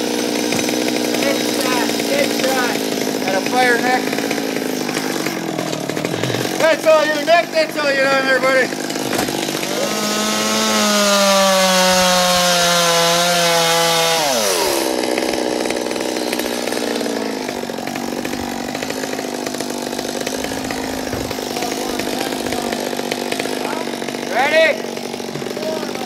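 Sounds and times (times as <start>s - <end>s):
chainsaw cutting wood: 0.0s - 26.0s.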